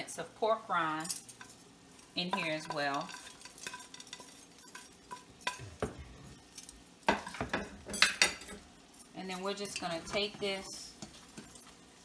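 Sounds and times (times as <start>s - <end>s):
cutlery clatter: 2.3s - 5.9s, 6.5s - 10.2s
cutlery scraping on plate: 2.3s - 6.0s.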